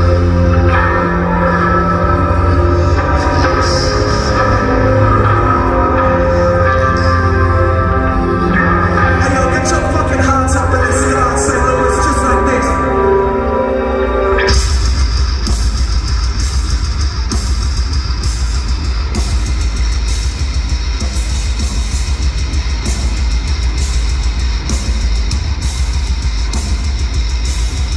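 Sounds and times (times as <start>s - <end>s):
distorted guitars: 0.0s - 27.9s
heavy bass: 0.0s - 27.9s
drum kit: 14.4s - 27.9s.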